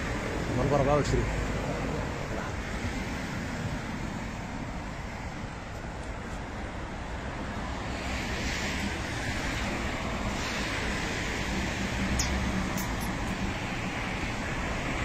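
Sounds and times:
road traffic rumble: 0.0 - 15.0
passing traffic hiss: 0.1 - 15.0.

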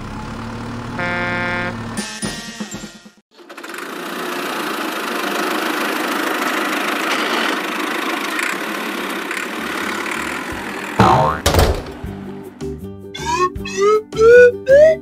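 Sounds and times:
toy tractor engine running: 3.4 - 11.4.

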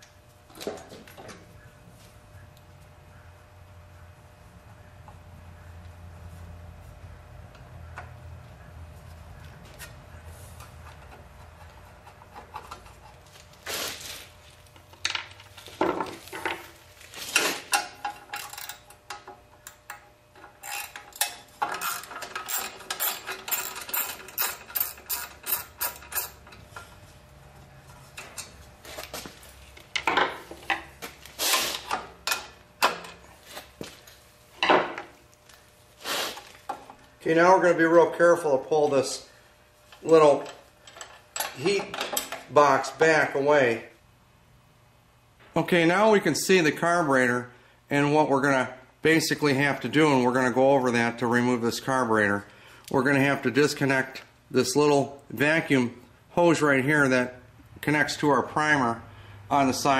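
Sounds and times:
hand tools and metal clinking: 10.6 - 27.0, 27.9 - 35.1, 39.9 - 42.5.

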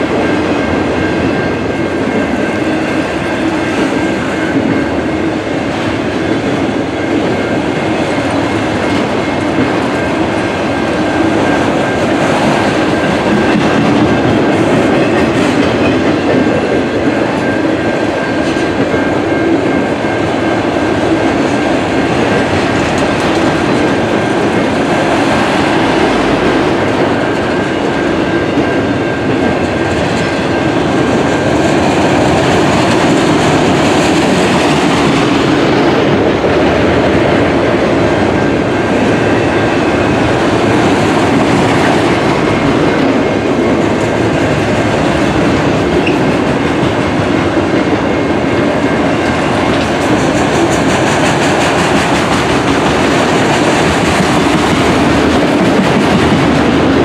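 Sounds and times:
freight cars rumbling and rattling: 0.0 - 57.0.

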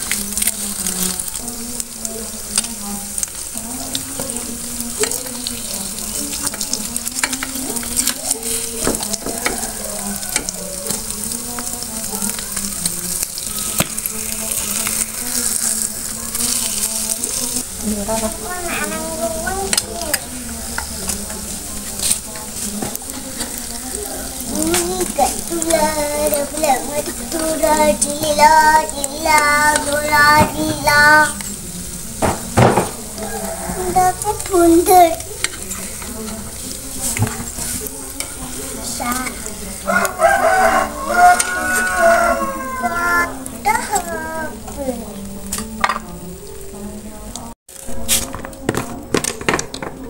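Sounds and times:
eggs sizzling in a pan: 0.0 - 49.9
utensils scraping a pan: 33.2 - 39.8.

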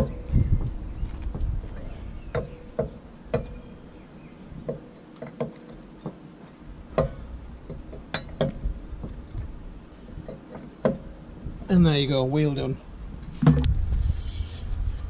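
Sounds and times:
wheel brace clinking on bolts: 4.6 - 9.3.

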